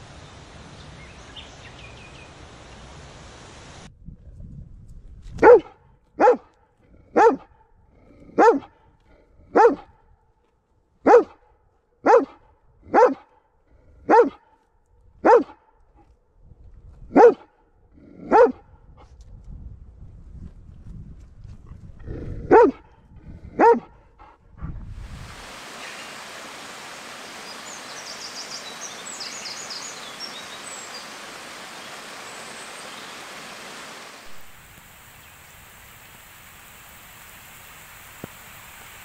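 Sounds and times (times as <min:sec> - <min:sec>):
steady outdoor hiss: 0:00.0 - 0:03.9, 0:24.2 - 0:39.0
dog barking: 0:05.4 - 0:07.7, 0:08.3 - 0:08.8, 0:09.5 - 0:10.0, 0:11.0 - 0:13.4, 0:14.0 - 0:14.6, 0:15.2 - 0:15.8, 0:17.1 - 0:17.6, 0:18.2 - 0:18.7, 0:22.5 - 0:24.1.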